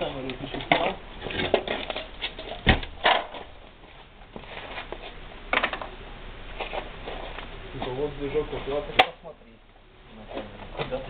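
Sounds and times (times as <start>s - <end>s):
hand tools and metal parts clattering: 0.0s - 5.9s.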